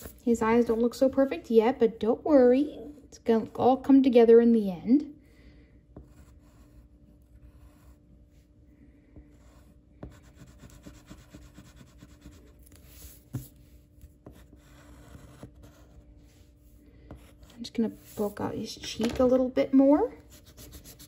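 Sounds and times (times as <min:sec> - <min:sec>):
pencil strokes on paper: 0:06.0 - 0:08.5, 0:09.2 - 0:18.6, 0:20.2 - 0:21.0.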